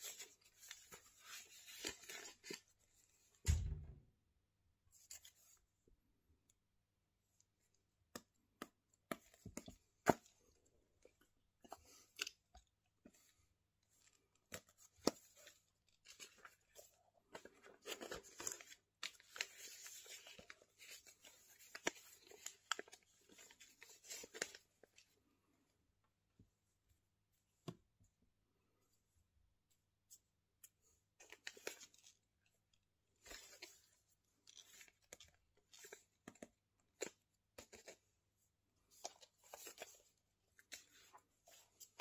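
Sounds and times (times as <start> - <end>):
paper crinkling and rustling: 0.0 - 3.5, 11.6 - 25.2, 33.1 - 38.1, 38.8 - 42.0.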